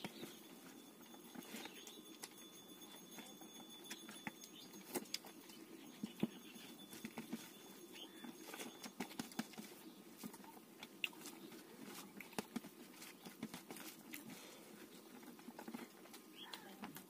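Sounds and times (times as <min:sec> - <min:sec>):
chewing: 0:00.2 - 0:17.0.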